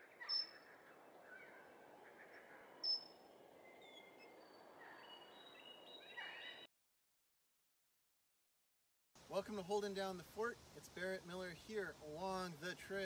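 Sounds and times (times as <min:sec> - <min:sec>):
birds chirping: 0:00.0 - 0:06.7, 0:09.4 - 0:13.0
steady hiss: 0:09.2 - 0:13.0.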